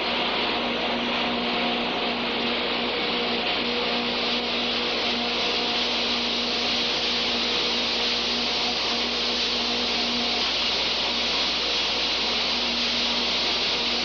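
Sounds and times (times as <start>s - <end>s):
foam sprayer hissing: 0.0s - 14.0s.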